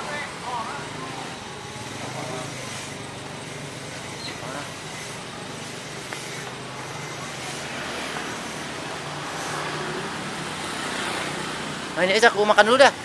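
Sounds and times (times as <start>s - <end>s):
hiss of passing vehicles: 0.0s - 13.0s.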